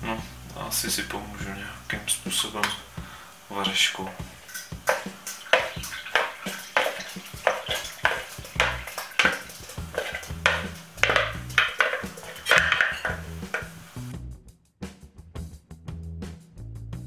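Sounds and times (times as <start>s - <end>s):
wooden spoon knocking and scraping: 4.1s - 14.0s.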